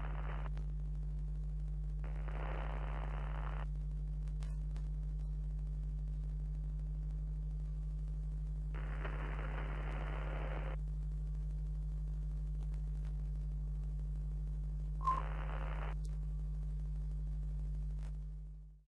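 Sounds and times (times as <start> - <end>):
static bursts: 0.0 - 0.5, 1.9 - 3.7, 8.4 - 12.4, 13.5 - 18.4
low electrical hum: 0.0 - 18.9
beep-like blip: 15.0 - 15.3.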